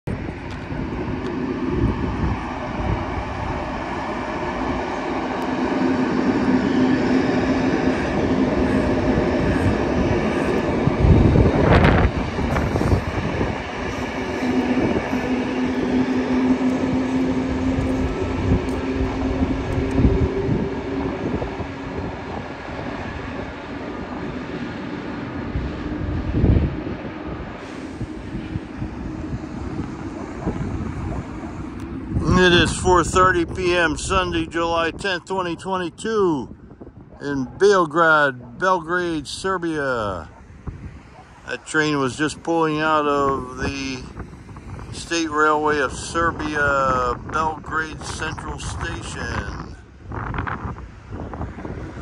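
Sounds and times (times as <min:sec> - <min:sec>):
wheels rumbling on track: 0:00.0 - 0:52.0
electric train hum: 0:00.1 - 0:52.0.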